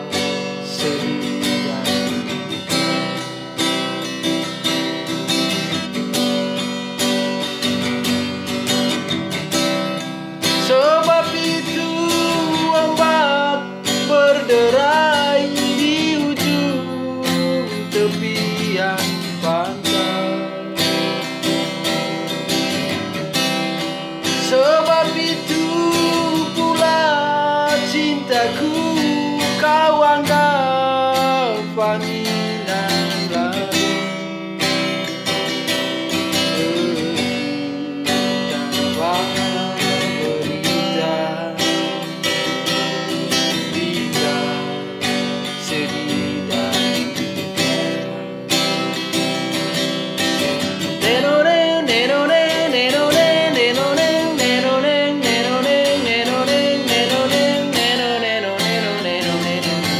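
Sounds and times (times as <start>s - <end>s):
man singing: 0.0s - 6.0s, 7.4s - 59.9s
acoustic guitar strumming: 0.0s - 59.9s.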